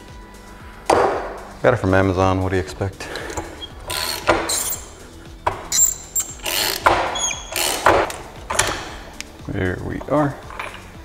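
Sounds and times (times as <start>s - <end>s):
hand ratchet clicking: 3.1s - 9.3s.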